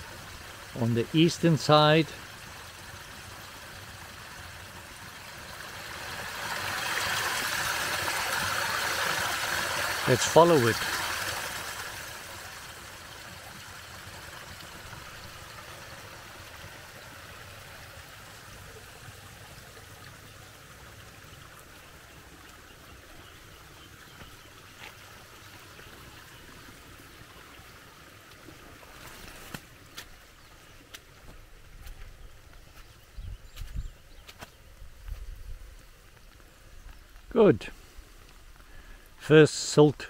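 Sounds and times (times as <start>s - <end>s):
water rushing from pipe: 0.0s - 31.9s.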